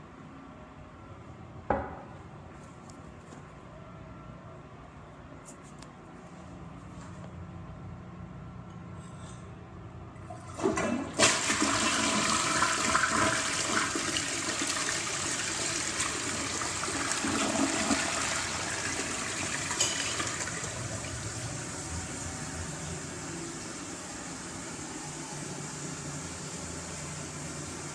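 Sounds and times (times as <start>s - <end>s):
toilet flush water rushing: 10.3s - 24.9s.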